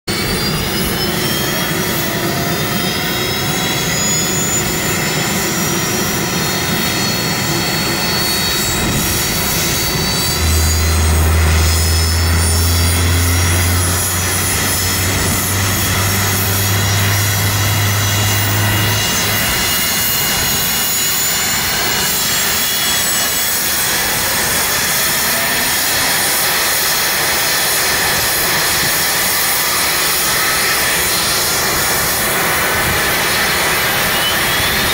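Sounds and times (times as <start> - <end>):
helicopter engine whine: 0.1 - 34.9
rotor and engine rush: 0.1 - 34.9
deep hum: 8.6 - 20.8.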